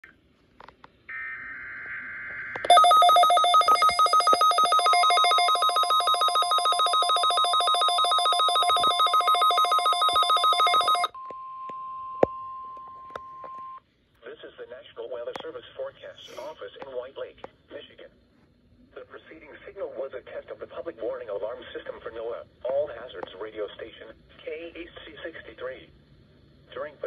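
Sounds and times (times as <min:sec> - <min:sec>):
steady warning tone: 0:01.1 - 0:11.2
radio alarm beeping rapidly: 0:02.6 - 0:11.2.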